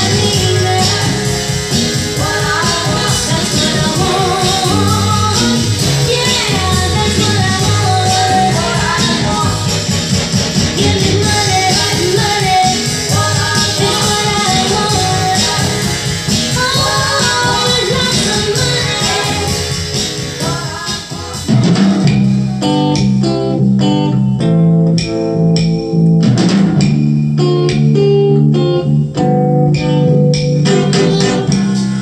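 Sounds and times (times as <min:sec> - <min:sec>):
pop song with singing over speakers: 0:00.0 - 0:23.4, 0:29.8 - 0:32.0
bass line: 0:00.0 - 0:32.0
plucked guitar notes: 0:22.0 - 0:31.8.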